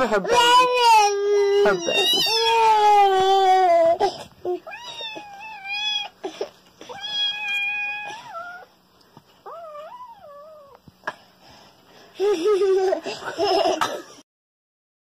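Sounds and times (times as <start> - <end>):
cat meowing: 6.9 - 8.7.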